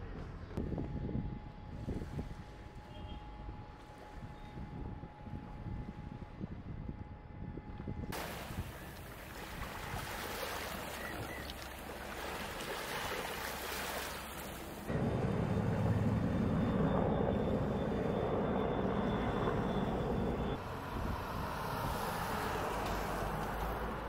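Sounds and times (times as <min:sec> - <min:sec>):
wind: 0:00.0 - 0:24.0
water washing: 0:08.2 - 0:14.9
faint high whine: 0:13.9 - 0:21.1
low engine rumble: 0:14.1 - 0:24.0.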